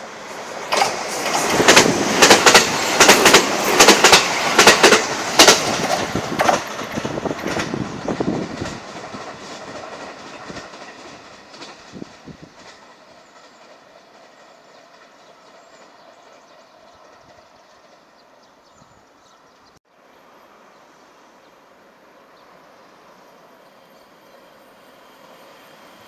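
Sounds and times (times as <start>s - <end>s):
electric train rushing past: 0.0s - 19.2s, 19.9s - 26.0s
train wheels clacking on rail joints: 0.4s - 18.1s.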